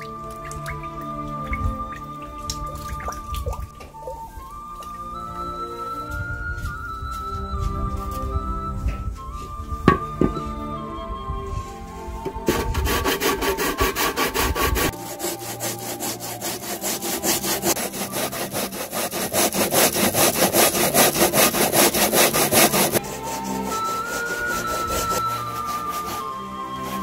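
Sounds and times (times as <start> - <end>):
root rasping on metal grater: 12.5 - 27.0.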